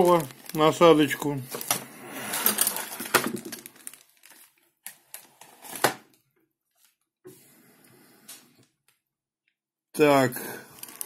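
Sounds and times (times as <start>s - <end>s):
plastic bags crinkling: 0.0s - 5.8s, 10.7s - 11.0s.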